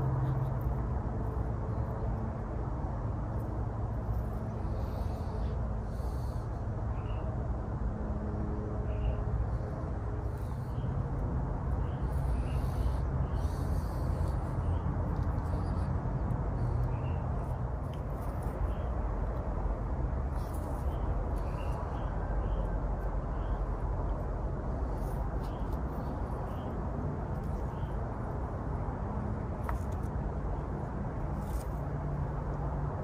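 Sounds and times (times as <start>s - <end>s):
low background rumble: 0.0s - 33.0s
leaves rustling and clicking: 31.3s - 31.9s.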